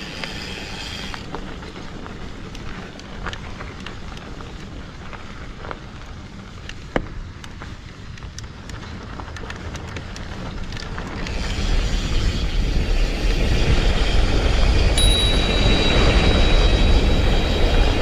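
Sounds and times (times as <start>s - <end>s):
bike tyres rumbling and rattling: 0.0s - 18.0s
wind on microphone: 9.3s - 18.0s
high-pitched whine: 14.8s - 18.0s.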